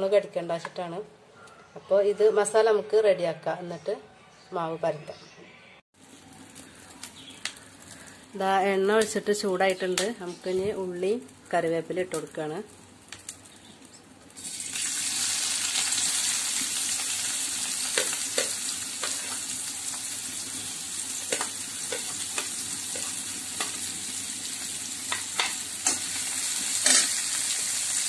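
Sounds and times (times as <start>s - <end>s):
onions sizzling in hot oil: 6.0s - 28.0s.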